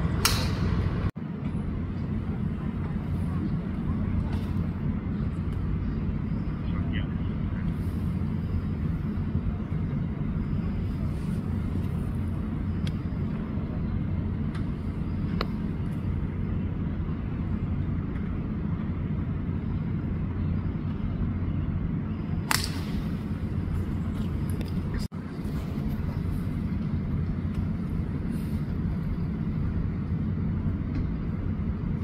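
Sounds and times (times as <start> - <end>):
golf club striking ball: 0.2 - 0.8, 22.5 - 23.2.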